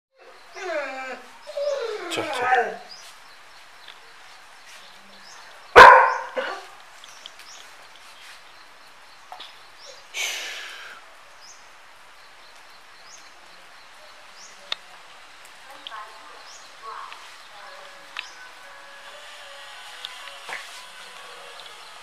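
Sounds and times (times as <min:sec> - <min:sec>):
soft hissy sound: 0:00.3 - 0:22.0
dog barking: 0:05.8 - 0:06.7.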